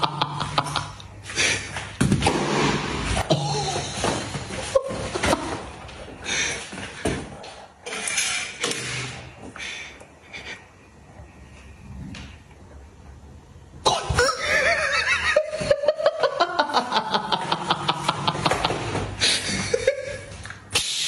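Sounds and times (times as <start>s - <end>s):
high cackling laugh: 14.1s - 20.4s.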